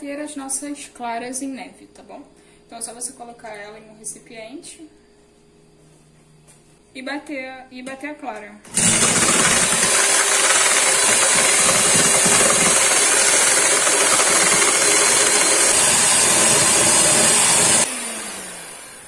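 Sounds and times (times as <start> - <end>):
electric hand mixer running: 8.7 - 19.0.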